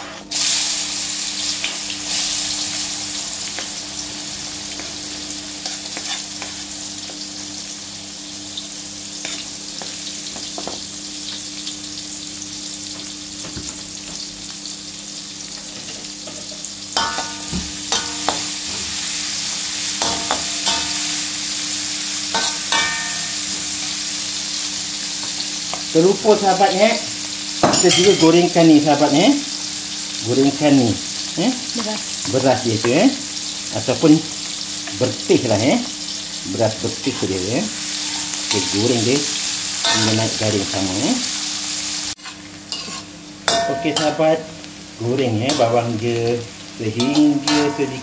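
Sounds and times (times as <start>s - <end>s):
metal spatula scraping a wok: 0.0s - 0.4s, 5.6s - 6.7s, 42.2s - 44.2s, 47.0s - 48.0s
onions sizzling in hot oil: 0.0s - 48.0s.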